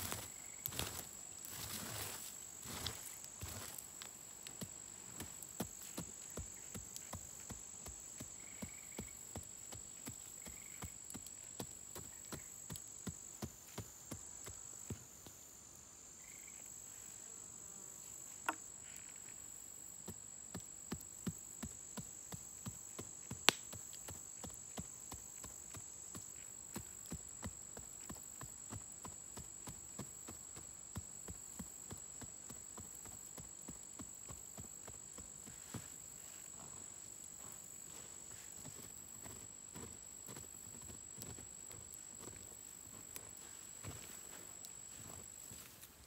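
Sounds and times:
high-pitched insect drone: 8.2s - 9.4s, 16.1s - 17.3s.

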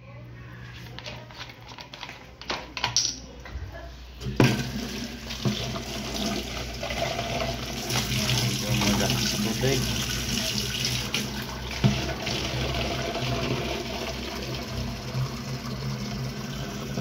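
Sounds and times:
tap water running into bottle: 4.2s - 17.0s
water splashing into steel sink: 4.2s - 17.0s.

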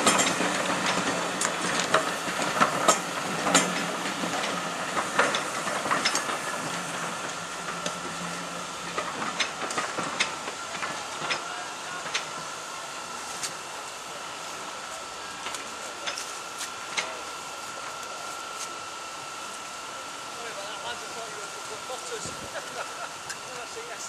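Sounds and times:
train wheels clicking over rail joints: 0.0s - 12.6s, 14.6s - 18.8s
train rumble: 0.0s - 24.0s.

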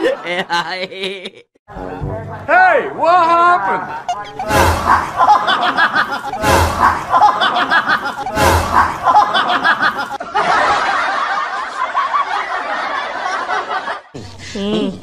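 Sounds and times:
people laughing: 0.0s - 1.6s, 3.8s - 15.0s
loud rushing noise: 4.4s - 10.2s.

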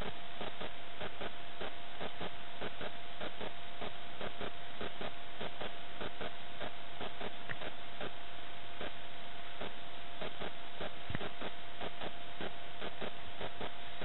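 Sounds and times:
high electronic whine: 0.0s - 14.0s.

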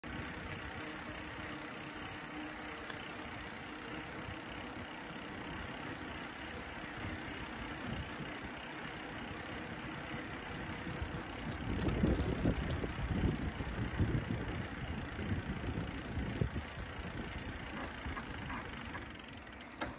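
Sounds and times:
vehicle engine running: 0.0s - 19.3s.

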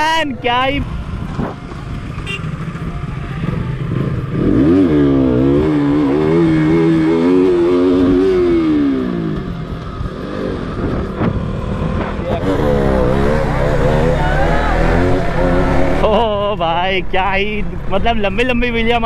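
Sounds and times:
motorcycle engine revving: 0.9s - 16.5s
wind noise: 7.5s - 14.1s.

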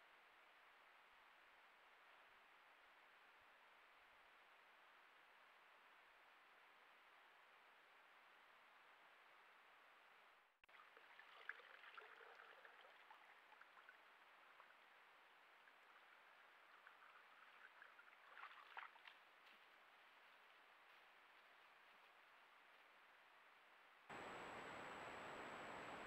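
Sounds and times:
water splashing: 15.5s - 19.4s
steady hiss: 24.1s - 26.0s.

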